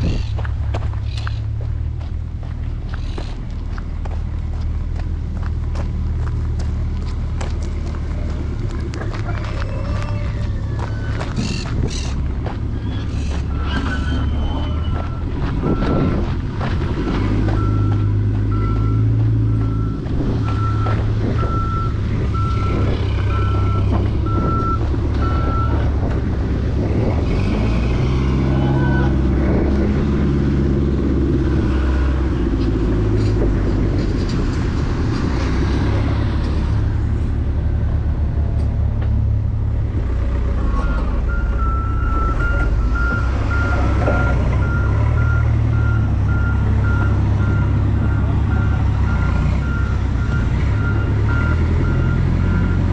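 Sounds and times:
truck engine running: 0.0 - 52.9
reversing alarm beeps: 17.5 - 25.8, 40.8 - 52.9.

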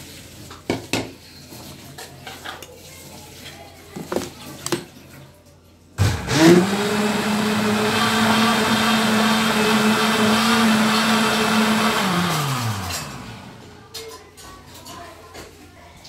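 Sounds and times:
blender motor whining: 6.0 - 13.8.

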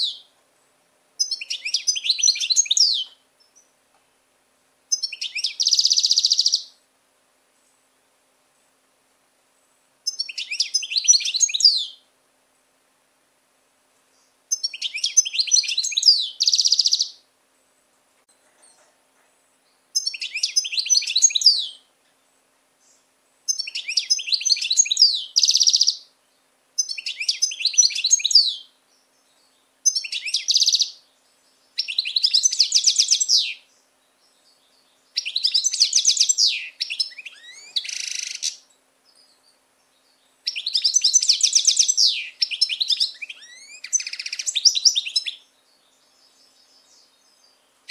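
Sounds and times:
goldfinch twittering song: 1.2 - 3.7, 4.9 - 6.7, 10.1 - 12.0, 14.2 - 17.2, 19.7 - 21.8, 22.9 - 26.1, 26.8 - 47.9.

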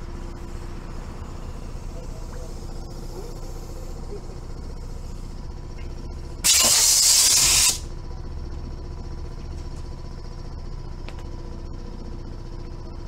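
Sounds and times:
low steady hum: 0.0 - 6.4, 7.8 - 13.0
compressed air blast hissing: 6.4 - 7.8.

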